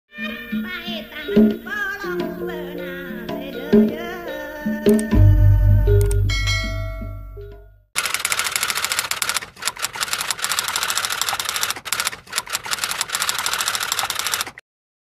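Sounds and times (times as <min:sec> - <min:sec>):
musical tail: 0:04.8 - 0:07.8
keyboard typing clicks: 0:04.9 - 0:05.3, 0:05.9 - 0:06.3.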